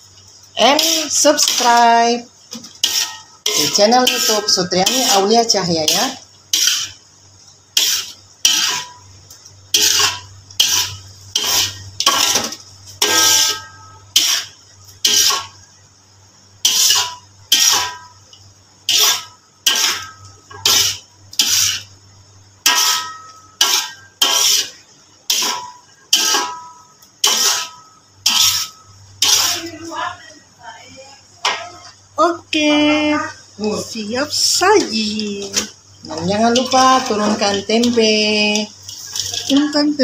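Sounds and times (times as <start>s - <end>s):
metal spatula scraping a wok: 0.6s - 7.1s, 7.7s - 9.1s, 9.7s - 15.6s, 16.6s - 18.2s, 18.8s - 22.0s, 22.6s - 29.9s, 34.7s - 40.0s.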